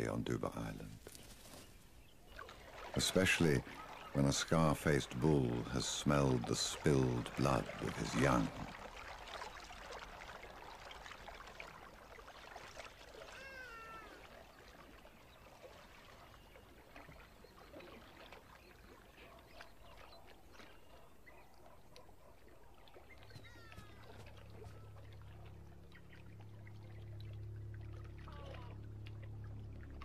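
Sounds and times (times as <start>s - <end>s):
low steady hum: 0.0s - 13.1s, 22.2s - 30.0s
animal swimming in water: 0.0s - 30.0s
high falling animal call: 13.3s - 14.2s, 23.3s - 25.0s.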